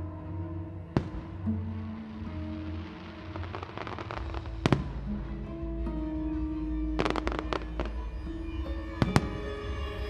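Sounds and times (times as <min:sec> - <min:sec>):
sustained musical notes: 0:00.0 - 0:10.0
fireworks bangs and cracks: 0:01.0 - 0:05.3.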